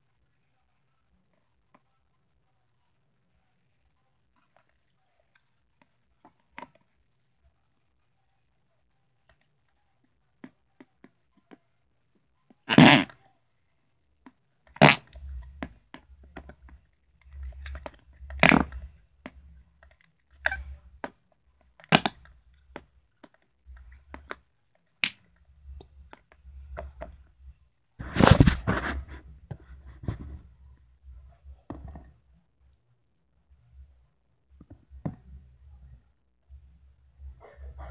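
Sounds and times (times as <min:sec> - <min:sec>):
noise putty squelching: 0:14.6 - 0:30.5.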